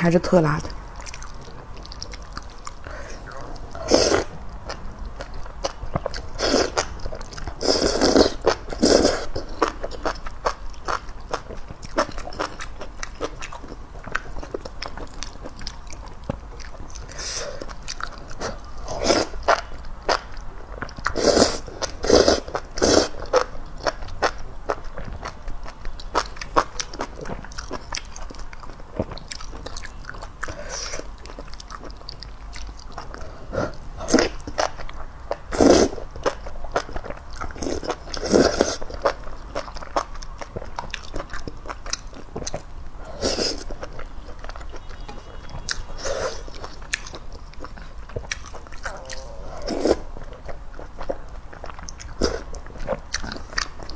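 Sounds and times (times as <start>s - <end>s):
chewing: 0.6s - 53.9s
person slurping noodles: 2.9s - 4.4s, 7.6s - 9.4s, 21.1s - 23.2s, 35.5s - 35.9s, 37.6s - 38.8s, 48.9s - 50.1s.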